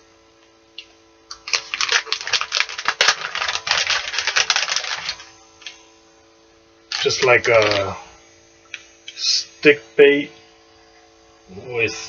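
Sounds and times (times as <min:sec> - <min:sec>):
plastic package crinkling: 0:01.3 - 0:05.8, 0:06.9 - 0:08.0.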